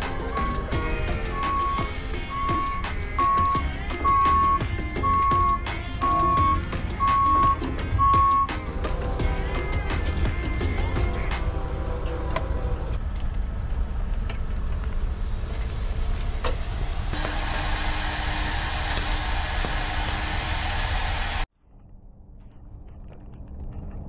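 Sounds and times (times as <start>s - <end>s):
loud hiss: 0.0s - 7.2s, 14.4s - 21.5s
diesel engine running: 0.0s - 21.5s.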